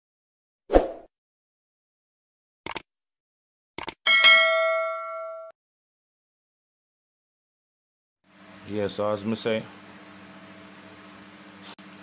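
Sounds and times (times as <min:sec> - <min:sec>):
notification bell ding: 0:04.1 - 0:05.5.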